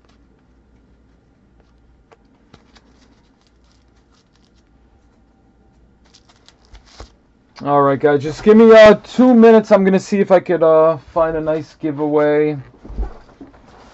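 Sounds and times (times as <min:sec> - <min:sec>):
trading cards tapping and rustling: 0:00.0 - 0:04.7, 0:06.0 - 0:07.2
low steady hum: 0:00.0 - 0:13.9.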